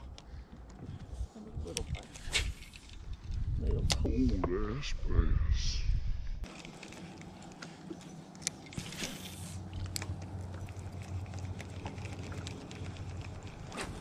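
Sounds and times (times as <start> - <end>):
low steady hum: 6.3 - 14.0
gear clicking and rustling: 6.4 - 14.0.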